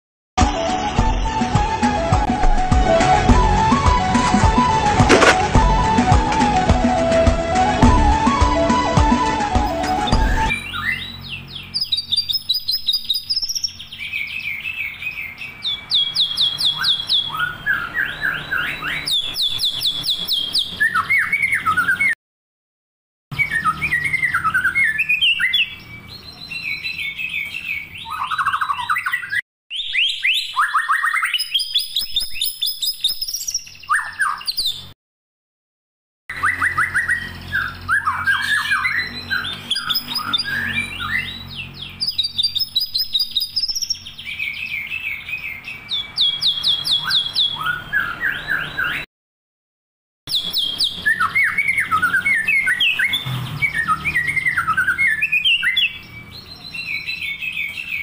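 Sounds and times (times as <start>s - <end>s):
songbird singing trills and chirps: 9.6s - 22.1s, 23.4s - 34.9s, 36.3s - 49.0s, 50.3s - 58.0s.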